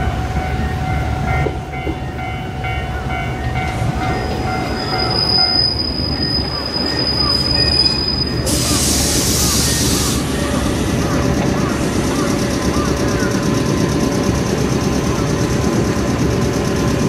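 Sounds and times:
train wheels rumbling on rails: 0.0s - 17.0s
high brake squeal: 4.2s - 10.5s.

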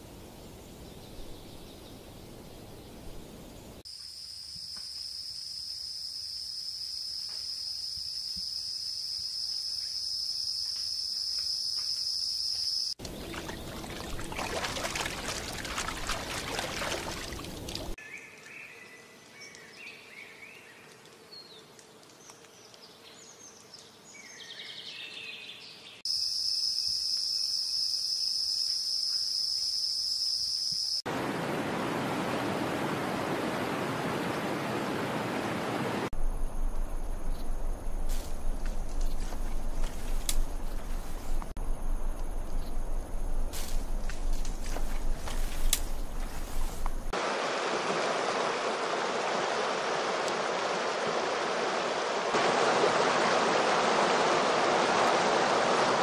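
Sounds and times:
flowing river: 13.0s - 18.0s, 31.1s - 36.1s, 44.2s - 56.0s
rushing water: 13.0s - 18.0s, 31.1s - 41.6s, 42.3s - 56.0s
high insect drone: 26.1s - 31.0s.

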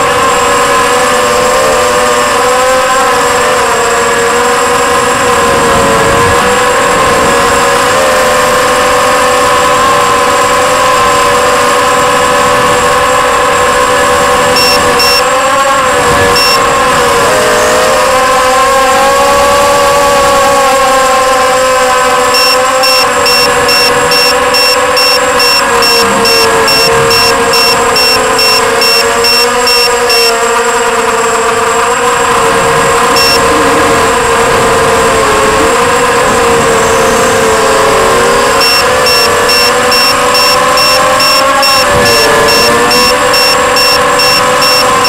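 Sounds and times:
electric motors and propellers whining: 0.0s - 45.0s
short high beeps: 14.5s - 15.3s, 16.2s - 16.6s, 22.3s - 30.4s, 33.1s - 33.6s, 38.6s - 45.0s.

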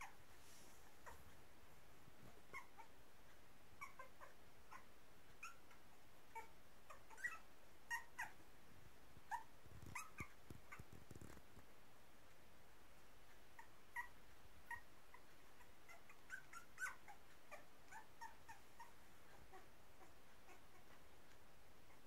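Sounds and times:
puppies squeaking and whimpering: 3.8s - 4.8s, 6.3s - 8.4s, 9.3s - 10.9s, 13.6s - 18.9s.

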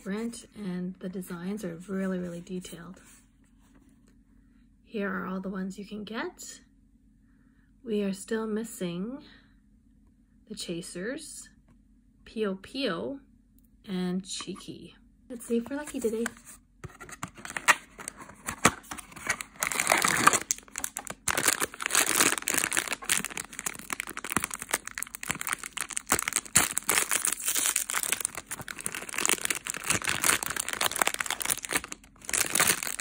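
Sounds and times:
foil wrapper crinkling and tearing: 17.4s - 33.0s.

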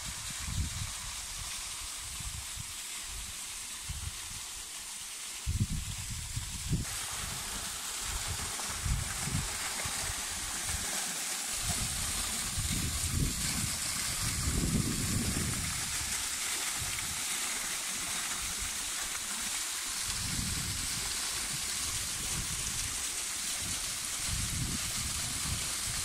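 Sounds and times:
waterfall splashing into pool: 0.0s - 26.0s.

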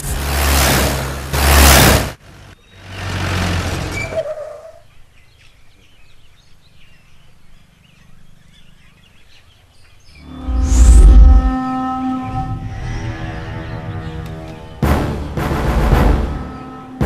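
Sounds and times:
vehicle driving on gravel: 0.0s - 4.7s
brake squeal: 0.0s - 4.8s
birds chirping: 4.2s - 11.0s, 13.2s - 14.8s.

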